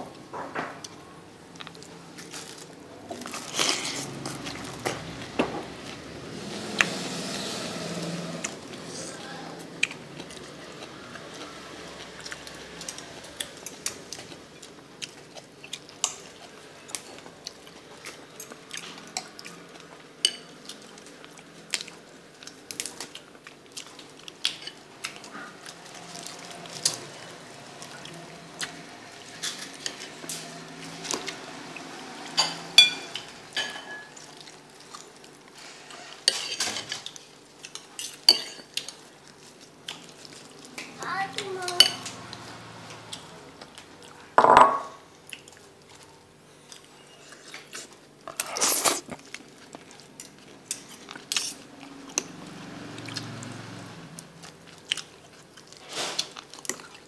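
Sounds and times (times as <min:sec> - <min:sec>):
spoon and fork clinking on bowl: 0:32.4 - 0:34.1.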